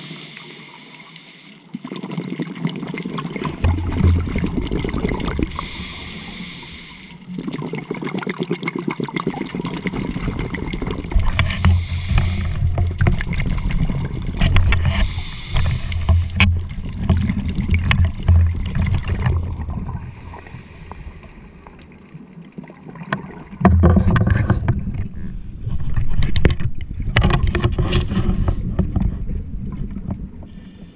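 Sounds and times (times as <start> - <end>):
exhaled air bubbling: 1.7 - 30.9
regulator inhalation hiss: 5.5 - 7.2, 11.8 - 12.6, 15.0 - 16.0, 20.0 - 21.7.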